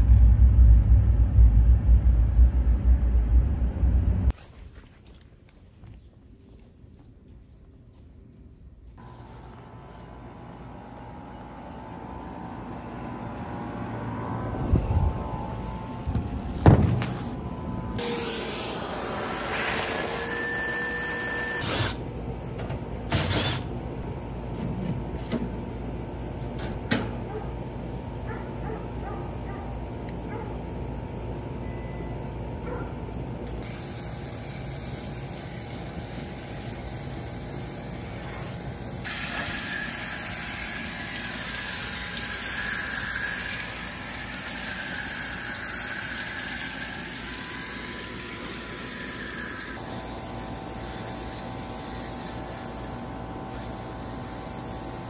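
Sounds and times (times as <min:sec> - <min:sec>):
constant hum: 0:00.0 - 0:55.0.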